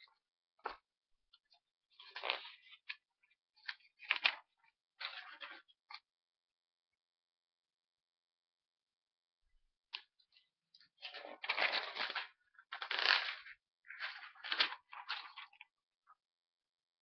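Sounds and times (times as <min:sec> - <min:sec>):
notepad pages rustling: 0:11.1 - 0:15.7.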